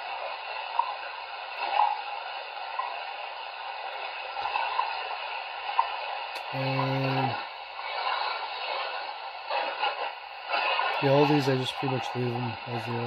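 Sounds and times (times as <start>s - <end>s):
radio time signal ticks: 0.0s - 13.0s
shortwave static hiss: 0.0s - 13.0s.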